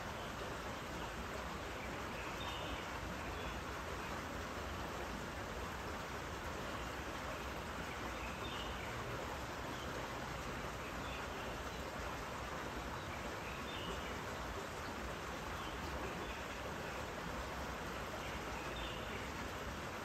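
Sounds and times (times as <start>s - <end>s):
steady outdoor hiss: 0.0s - 20.0s.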